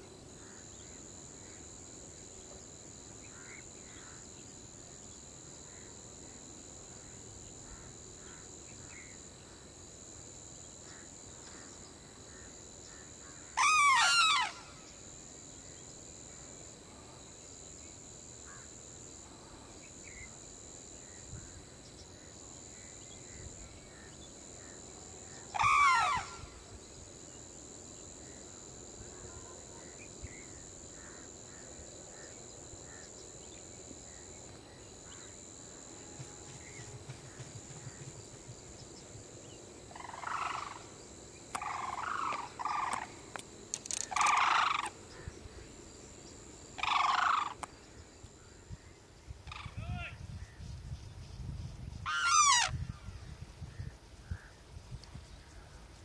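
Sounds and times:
high-pitched insect drone: 0.0s - 56.0s
crane bird calling loudly: 13.5s - 14.7s, 25.5s - 26.5s, 39.9s - 40.9s, 43.9s - 45.0s, 46.8s - 47.7s, 49.4s - 50.1s, 52.0s - 52.8s.

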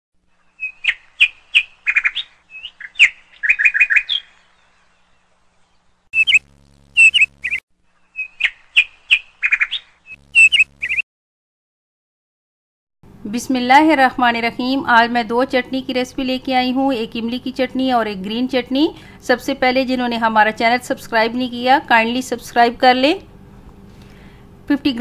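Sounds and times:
bird chirping: 0.3s - 11.0s.

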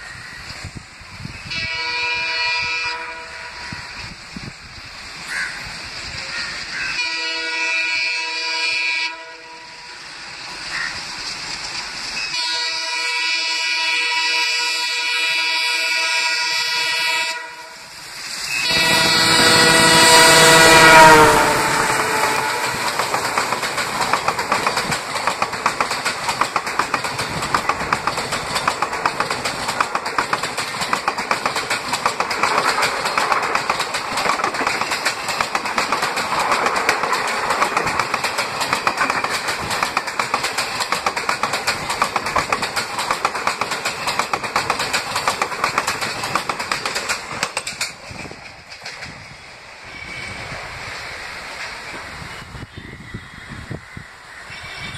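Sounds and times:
train wheels clattering over rail joints: 18.4s - 49.7s.

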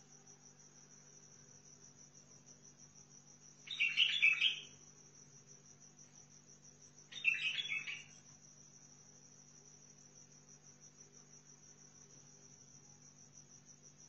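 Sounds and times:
bird singing warbled phrases: 3.7s - 4.7s, 7.1s - 8.1s.

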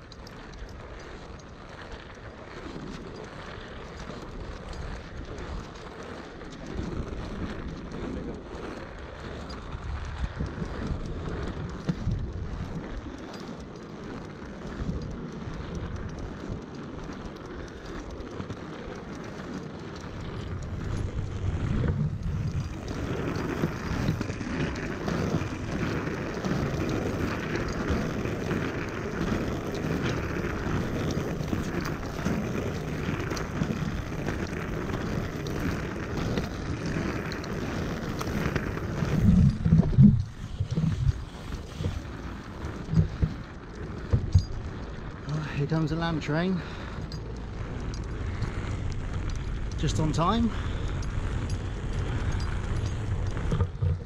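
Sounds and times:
skate wheels rolling on pavement: 0.0s - 54.0s
wind buffeting microphone: 0.0s - 54.0s.

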